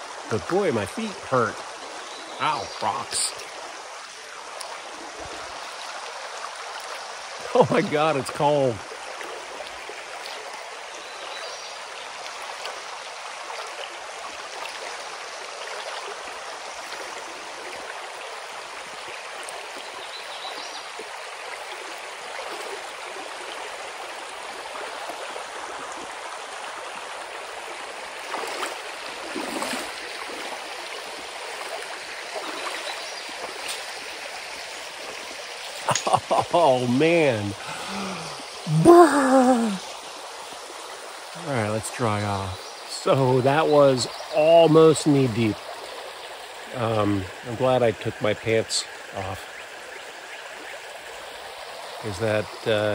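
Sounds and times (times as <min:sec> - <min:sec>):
water rushing over rocks: 0:00.0 - 0:45.7
wading splashes: 0:21.6 - 0:26.1, 0:27.2 - 0:39.8.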